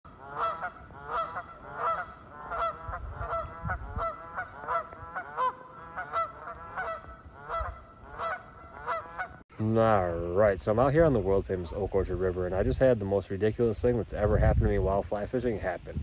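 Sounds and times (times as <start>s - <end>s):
geese honking: 0.1s - 9.4s.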